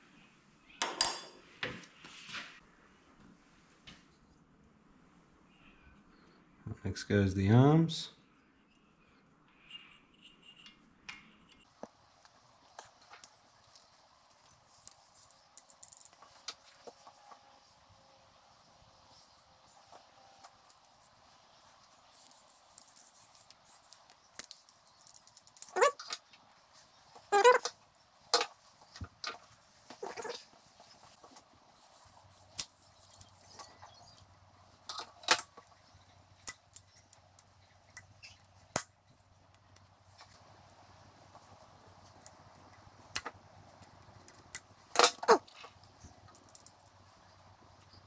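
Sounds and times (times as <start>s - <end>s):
small metal parts clicking: 12.1s - 17.4s, 19.0s - 29.4s, 31.8s - 40.0s, 42.2s - 47.0s
pliers clicking on metal parts: 22.2s - 26.2s.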